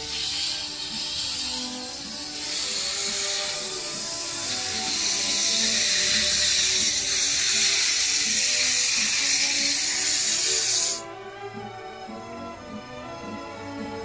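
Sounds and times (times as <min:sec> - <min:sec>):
steam venting hiss: 0:00.0 - 0:11.1
background music: 0:00.0 - 0:14.0.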